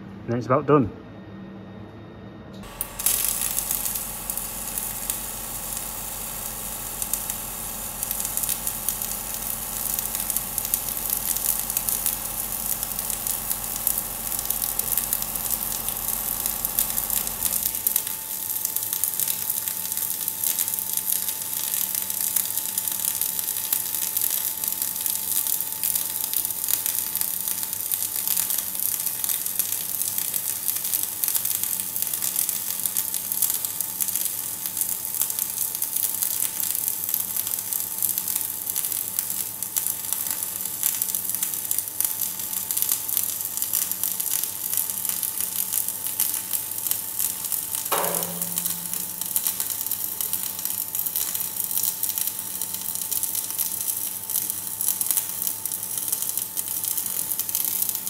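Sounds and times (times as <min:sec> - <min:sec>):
low electrical hum: 0:00.0 - 0:58.0
steady high whine: 0:01.0 - 0:18.6, 0:47.9 - 0:49.9
welding arc crackling: 0:02.6 - 0:58.0.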